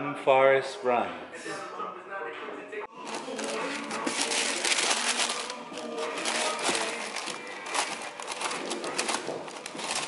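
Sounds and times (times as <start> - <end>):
background music: 0.0 - 10.0
tissue paper crinkling: 3.0 - 10.0.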